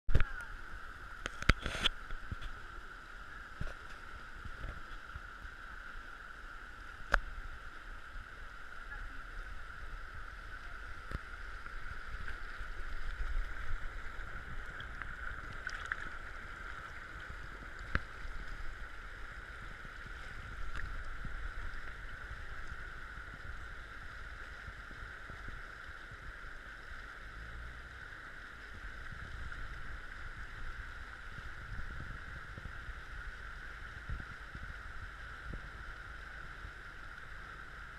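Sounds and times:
river rushing over stones: 0:00.1 - 0:37.9
wind rumbling on microphone: 0:00.1 - 0:37.9.

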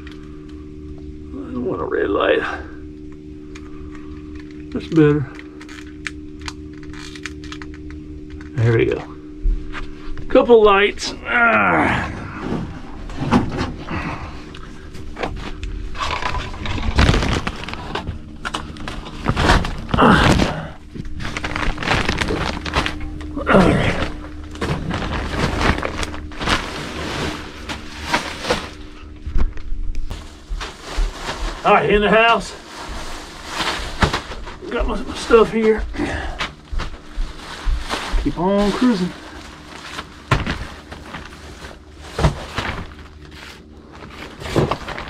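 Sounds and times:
body and gear knocks and shuffles: 0:15.0 - 0:18.2, 0:18.8 - 0:45.0
plastic sheeting crinkling: 0:15.9 - 0:29.2, 0:30.1 - 0:45.0.

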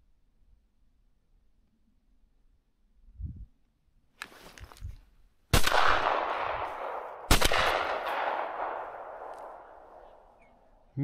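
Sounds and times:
shotgun shots with echo: 0:05.5 - 0:10.3.

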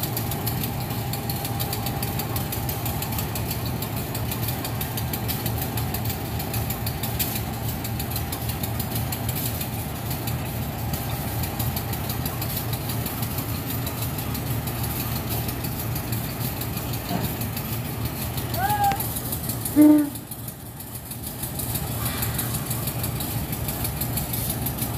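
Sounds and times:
diesel locomotive engine idling: 0:00.0 - 0:24.9.

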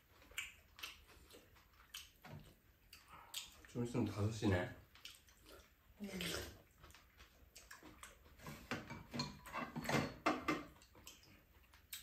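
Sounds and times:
chewing: 0:00.0 - 0:04.2, 0:04.8 - 0:09.5, 0:10.6 - 0:12.0.

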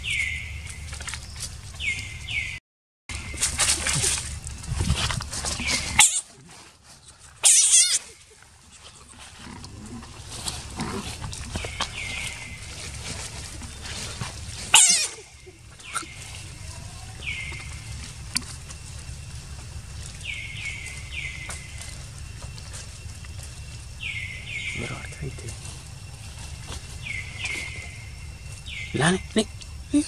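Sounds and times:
harsh animal screeches: 0:05.6 - 0:06.6, 0:07.4 - 0:08.3, 0:13.8 - 0:16.5.

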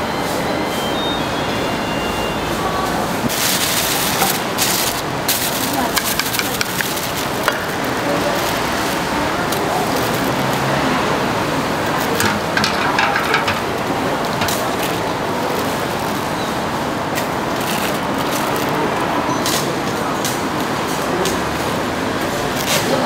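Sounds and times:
busy food stall noise: 0:00.0 - 0:23.0
sharp clicks and knocks: 0:12.2 - 0:15.0.

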